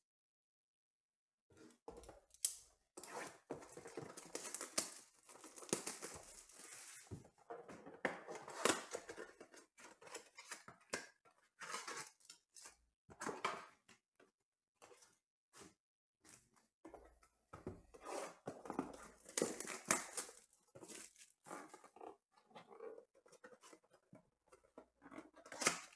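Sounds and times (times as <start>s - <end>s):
wrapper and cardboard tearing: 3.2s - 7.1s, 19.2s - 21.7s.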